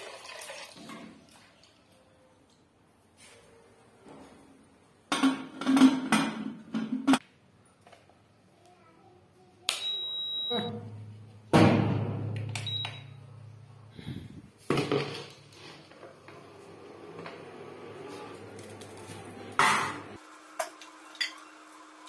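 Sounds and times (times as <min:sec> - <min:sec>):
cooktop beeps: 0:09.7 - 0:10.8, 0:12.4 - 0:13.5.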